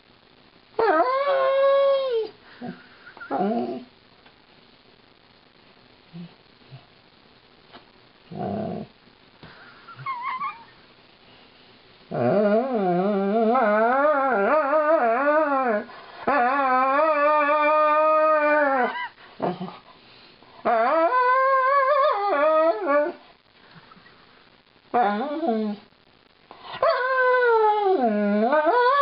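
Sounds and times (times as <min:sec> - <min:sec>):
dog howling: 0:00.8 - 0:02.3, 0:12.1 - 0:19.1, 0:20.6 - 0:23.2, 0:26.8 - 0:29.0
dog yipping: 0:10.0 - 0:10.7.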